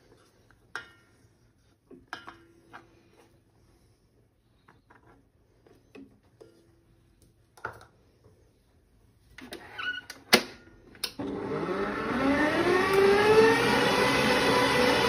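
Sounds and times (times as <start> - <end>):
mixer motor whining: 11.1 - 15.0.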